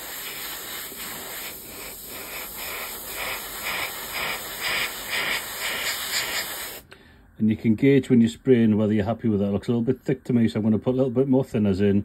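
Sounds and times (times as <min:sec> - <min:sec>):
airbrush hissing: 0:00.0 - 0:06.8.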